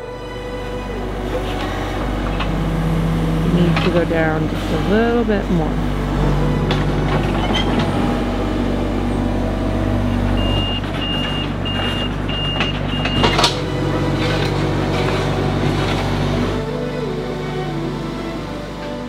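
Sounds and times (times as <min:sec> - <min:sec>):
excavator engine running: 0:00.0 - 0:19.0
travel alarm beeps: 0:10.1 - 0:13.4.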